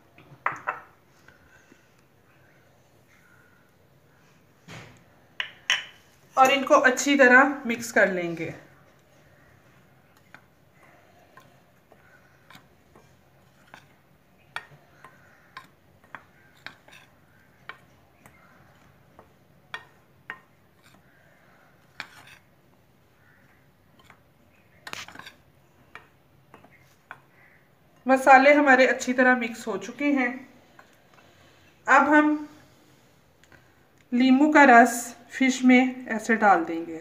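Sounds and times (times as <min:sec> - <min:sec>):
spoon scraping flour: 0:08.8 - 0:22.6, 0:23.2 - 0:27.6.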